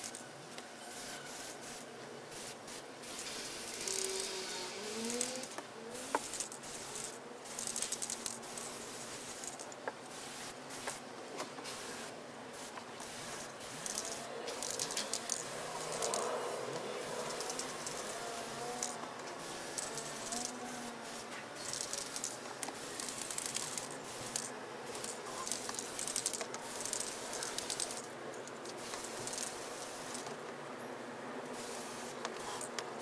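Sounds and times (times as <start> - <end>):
spray can hissing: 0.9 - 28.1, 28.7 - 30.3, 31.6 - 32.8.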